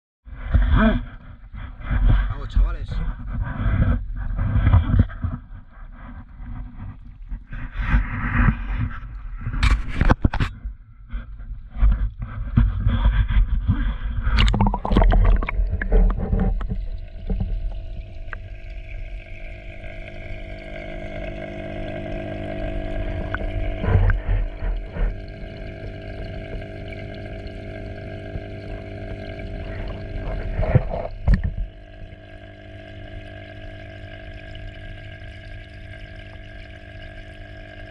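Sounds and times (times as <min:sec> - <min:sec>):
underwater hum with held tones: 0:00.3 - 0:37.9
water splashing: 0:14.3 - 0:37.9.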